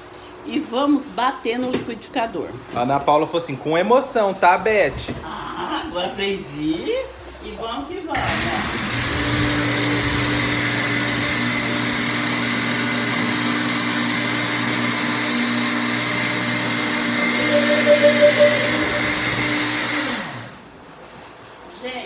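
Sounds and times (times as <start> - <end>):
blender running: 8.2 - 20.6.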